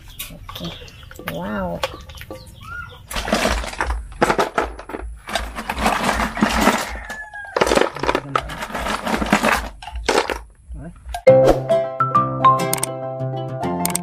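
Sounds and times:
snail shells rattling in plastic basin: 3.0s - 10.6s.

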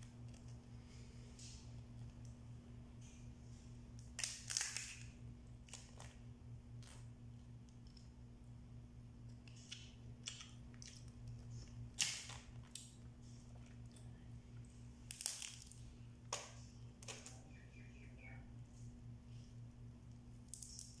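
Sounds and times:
steady low hum: 0.0s - 21.0s
crab shells cracking: 4.0s - 7.0s, 9.3s - 13.0s, 15.0s - 17.4s, 20.4s - 21.0s.

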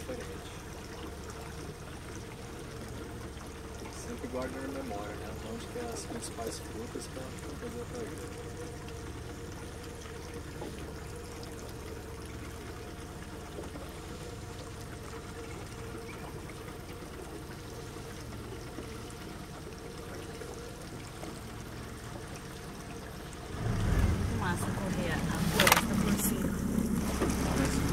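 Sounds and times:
rushing water: 0.0s - 27.9s.

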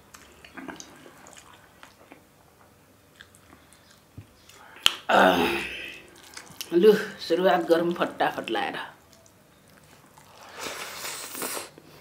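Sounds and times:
chewing: 0.1s - 5.0s, 6.1s - 6.8s, 9.0s - 11.8s.

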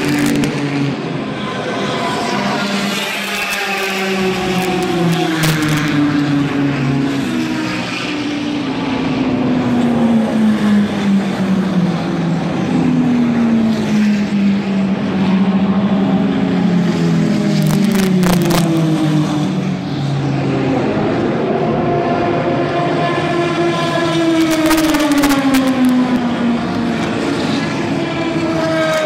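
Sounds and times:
racing cars passing at speed: 0.0s - 29.0s.

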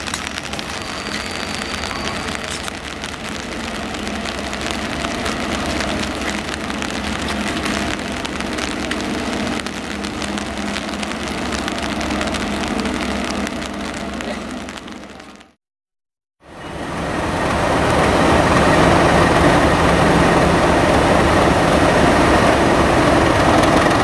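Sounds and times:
diesel locomotive engine droning: 0.0s - 15.5s, 16.4s - 24.0s
rain hissing: 0.0s - 15.6s.

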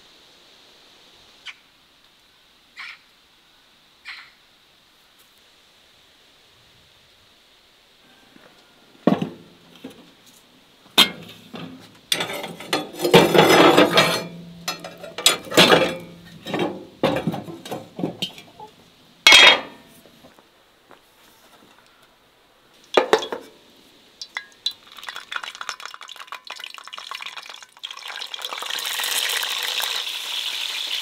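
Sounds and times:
cast iron clanks and scrapes: 9.1s - 10.0s, 10.9s - 18.7s, 19.3s - 20.0s, 22.9s - 23.6s.

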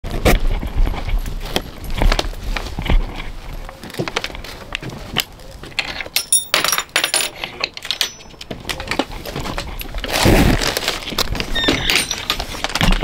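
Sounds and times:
light metallic jingling: 6.2s - 8.4s
plastic bag rustling: 8.3s - 13.0s.

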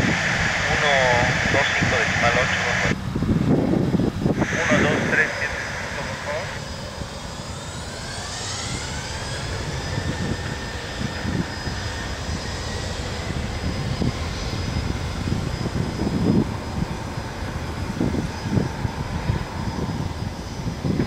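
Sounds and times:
jet blast rumble: 0.0s - 21.0s
jet engines spooling up: 0.0s - 21.0s.

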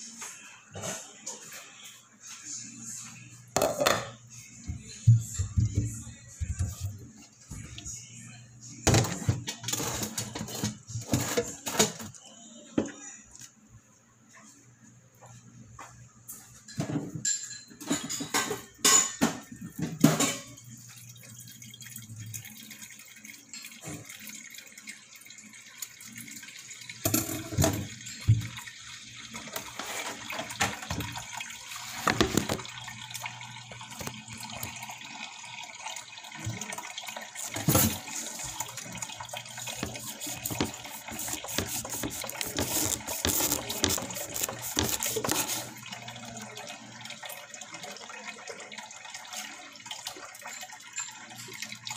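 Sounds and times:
pots and dishes clattering: 3.6s - 4.2s, 8.9s - 12.1s, 16.5s - 20.8s, 27.0s - 28.7s, 29.4s - 32.7s, 37.4s - 45.8s
water running and splashing: 20.0s - 51.9s.

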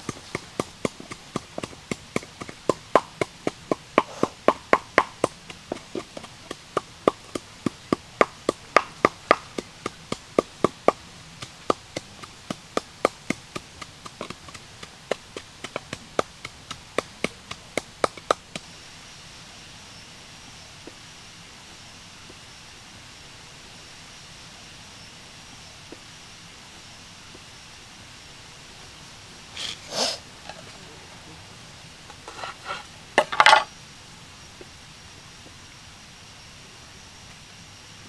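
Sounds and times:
pestle pounding in wooden mortar: 0.0s - 18.7s, 32.1s - 33.7s.

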